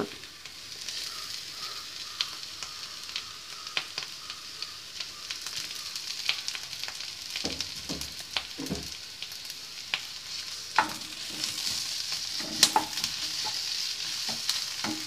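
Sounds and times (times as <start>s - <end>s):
masala sizzling in frying pan: 0.0s - 15.0s
sharp crackles: 0.0s - 15.0s.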